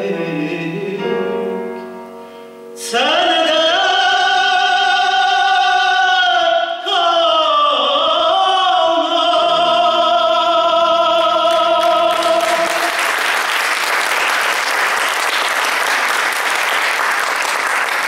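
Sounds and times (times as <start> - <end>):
man singing a long note: 0.0 - 1.8, 2.8 - 13.0
grand piano chords: 0.0 - 5.1
audience applause: 11.5 - 18.0.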